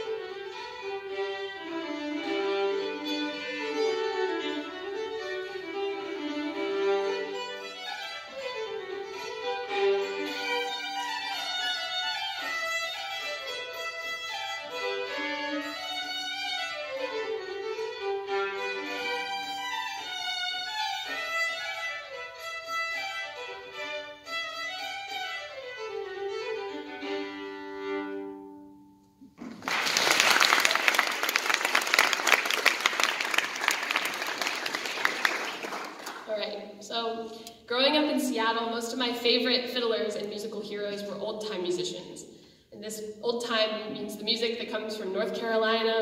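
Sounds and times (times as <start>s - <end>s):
fiddle playing: 0.0s - 28.9s
audience applauding: 29.4s - 36.3s.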